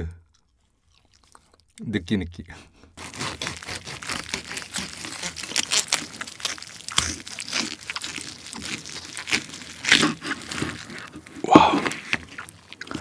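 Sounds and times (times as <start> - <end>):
crisp pork skin crackling: 3.0 - 13.0
knife cutting crisp skin: 3.0 - 13.0.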